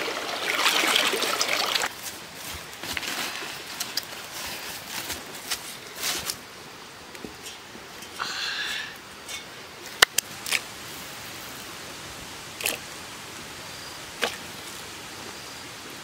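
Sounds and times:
steady hiss: 0:00.0 - 0:16.0
wok scraping on stones: 0:07.3 - 0:10.0.

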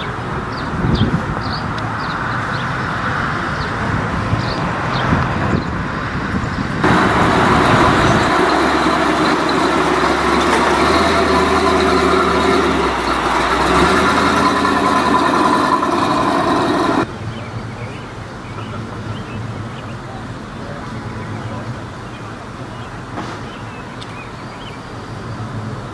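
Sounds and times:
pickup truck engines driving past: 0:00.0 - 0:17.1.

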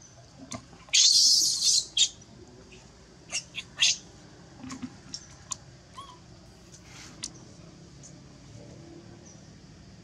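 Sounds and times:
baby monkey crying: 0:00.9 - 0:02.1, 0:03.3 - 0:04.0, 0:05.9 - 0:06.3.

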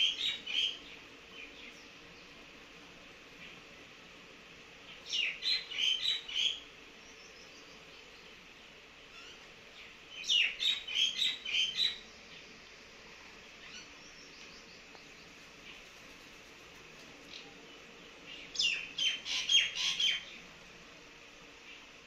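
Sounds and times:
small bird chirping: 0:00.0 - 0:02.4, 0:04.8 - 0:08.4, 0:09.1 - 0:12.6, 0:13.4 - 0:15.9, 0:17.2 - 0:20.5
faint steady background hum: 0:00.0 - 0:22.0.

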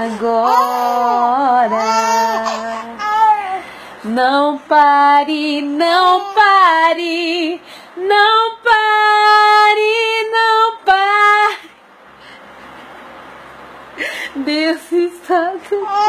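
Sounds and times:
woman singing unaccompanied: 0:00.0 - 0:11.7, 0:14.3 - 0:16.0
short breaths: 0:03.6 - 0:04.0.

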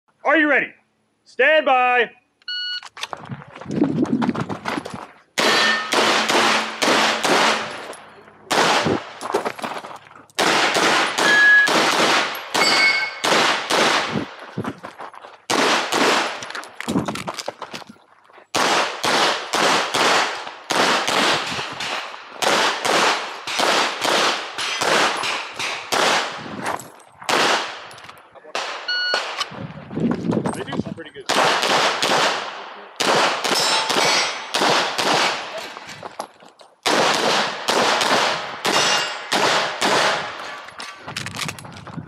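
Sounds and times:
pistol shots: 0:05.4 - 0:09.2, 0:10.4 - 0:14.4, 0:15.5 - 0:16.5, 0:18.5 - 0:26.4, 0:27.3 - 0:27.9, 0:28.5 - 0:29.5, 0:31.3 - 0:35.6, 0:36.8 - 0:40.6
brief metallic rings: 0:12.6 - 0:13.2.

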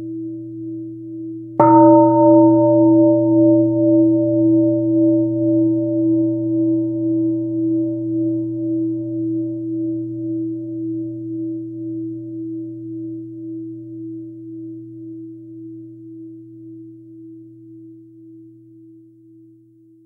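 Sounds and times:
meditation bell ringing: 0:01.6 - 0:12.0.

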